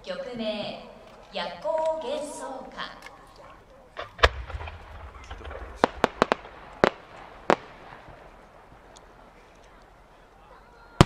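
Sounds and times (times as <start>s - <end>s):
firework crackling: 3.9s - 11.0s
firework boom: 4.0s - 8.9s.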